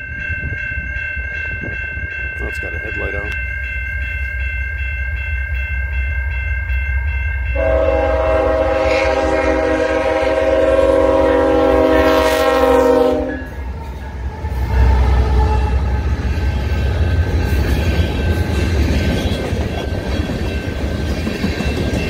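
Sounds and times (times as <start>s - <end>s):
crossing bell ringing: 0.0s - 22.0s
train horn blast: 7.6s - 16.0s
diesel locomotive rumble: 7.6s - 22.0s.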